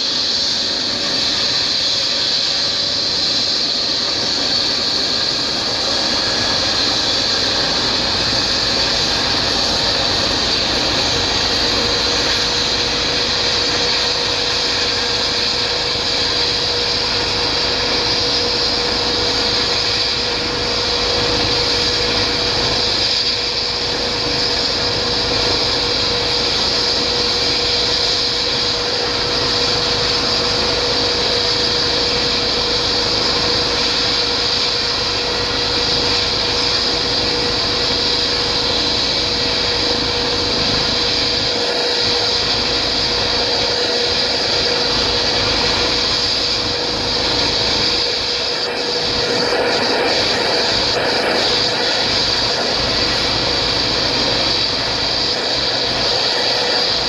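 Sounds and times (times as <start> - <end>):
helicopter turbine whine: 0.0 - 57.0.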